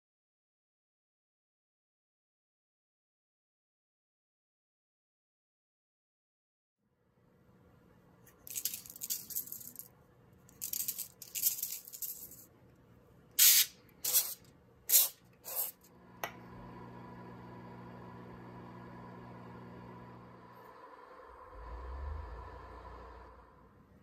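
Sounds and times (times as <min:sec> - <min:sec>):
salt grinder grinding: 0:13.4 - 0:15.9.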